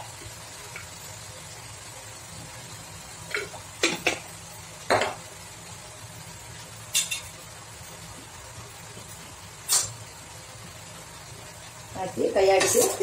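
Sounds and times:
chicken frying in oil: 0:00.0 - 0:13.0
oil popping: 0:03.2 - 0:05.3.

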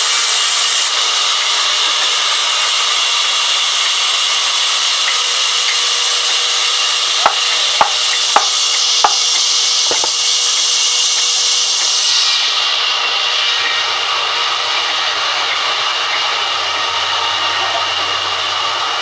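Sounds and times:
band saw cutting wood: 0:00.0 - 0:19.0
sharp knocks: 0:07.2 - 0:09.2, 0:09.9 - 0:10.2.

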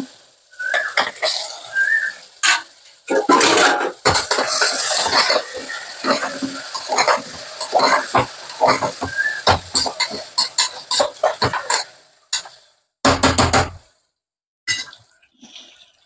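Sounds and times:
food sizzling: 0:00.0 - 0:12.8
metal spoon scraping frying pan: 0:02.4 - 0:12.6.

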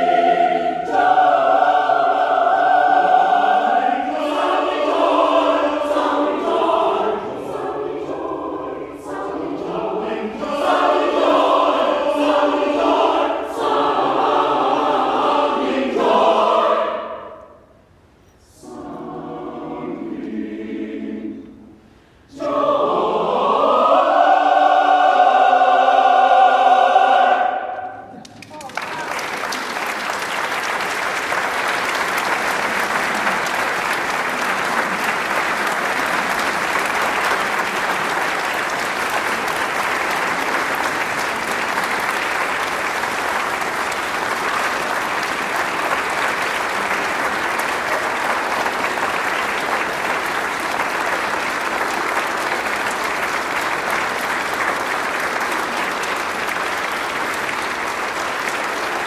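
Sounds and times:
audience applauding: 0:28.1 - 0:59.0.

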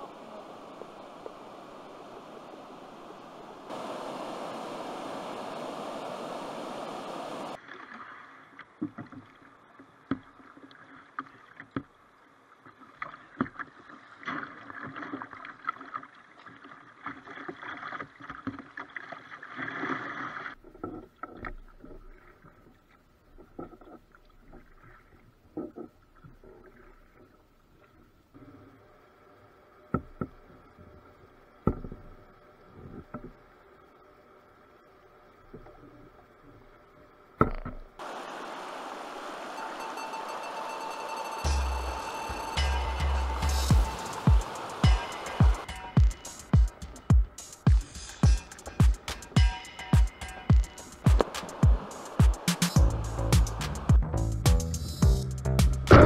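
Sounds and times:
water rushing over weir: 0:00.0 - 0:07.6, 0:38.0 - 0:54.0
paddle splashes: 0:00.0 - 0:23.0, 0:37.6 - 0:54.0
paddle knocks: 0:43.7 - 0:54.6.

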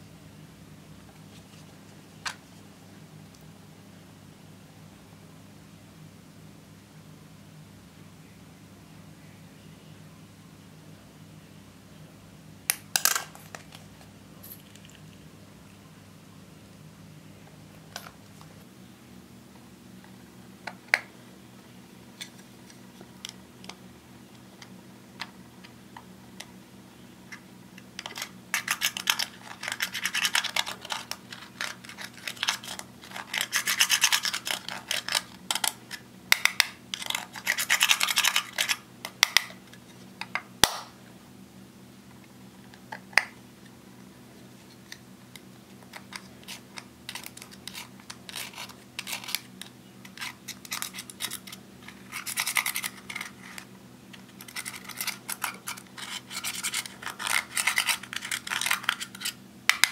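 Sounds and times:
spatula scraping eyeshadow: 0:28.0 - 0:35.8, 0:45.9 - 0:59.4.

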